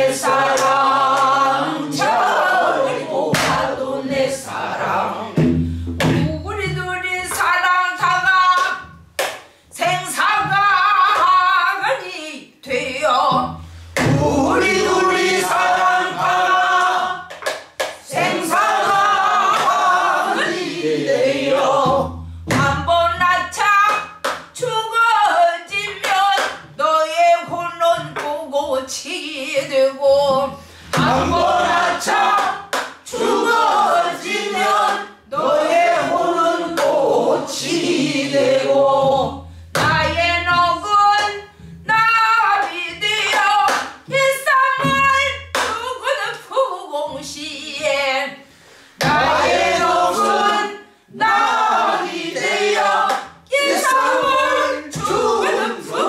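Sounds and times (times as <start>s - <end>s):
woman singing with wavering pitch: 6.1s - 8.9s, 9.8s - 15.2s, 21.9s - 32.7s, 39.0s - 48.4s.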